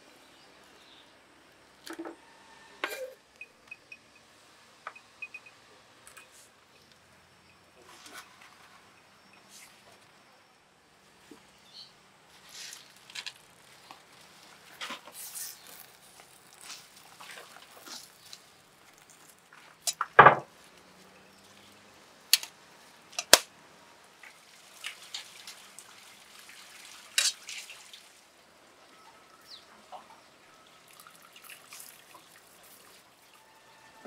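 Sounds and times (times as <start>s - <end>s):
water splashing and dripping: 12.4s - 22.5s, 24.0s - 33.4s.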